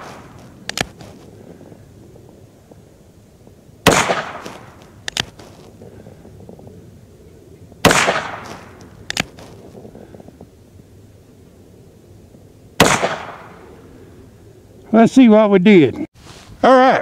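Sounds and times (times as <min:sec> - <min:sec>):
revolver gunshots with echo: 0:03.8 - 0:04.7, 0:07.8 - 0:08.8, 0:12.8 - 0:13.6.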